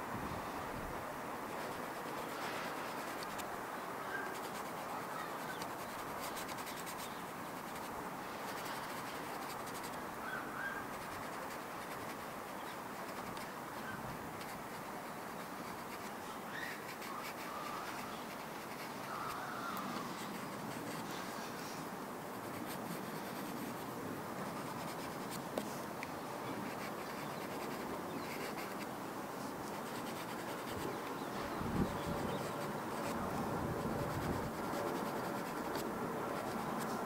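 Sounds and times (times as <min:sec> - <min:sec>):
pastel scratching on paper: 0:01.5 - 0:03.5, 0:04.2 - 0:10.0, 0:10.8 - 0:13.5, 0:14.3 - 0:21.6, 0:22.3 - 0:25.8, 0:26.5 - 0:28.9, 0:29.7 - 0:31.0, 0:31.8 - 0:37.0
bird calls: 0:04.0 - 0:07.4, 0:10.2 - 0:11.1, 0:16.0 - 0:20.4.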